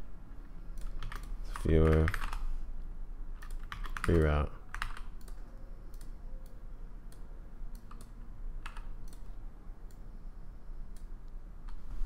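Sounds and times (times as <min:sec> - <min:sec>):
low hum: 0:00.0 - 0:12.0
keyboard and mouse clicks: 0:00.7 - 0:02.4, 0:03.4 - 0:10.0.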